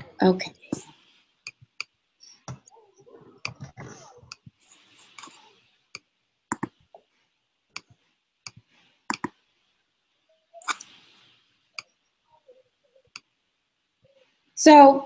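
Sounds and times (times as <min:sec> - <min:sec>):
faint hiss: 0:04.3 - 0:14.9
computer mouse clicks: 0:05.9 - 0:06.8, 0:07.8 - 0:09.4.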